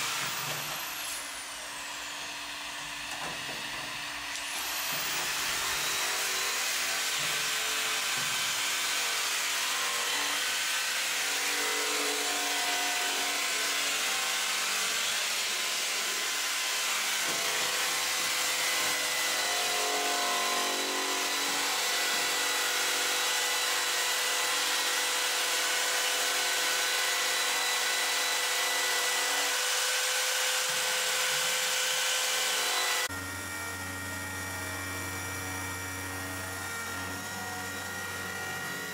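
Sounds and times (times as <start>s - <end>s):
orbital sander humming: 32.0s - 38.9s.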